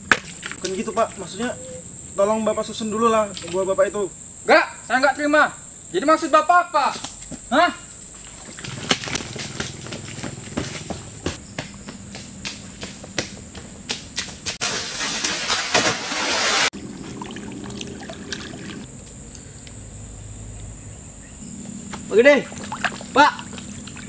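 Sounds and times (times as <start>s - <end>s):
footsteps running through mud: 8.2s - 16.7s
loud splashing in water: 14.6s - 18.9s, 22.4s - 24.0s.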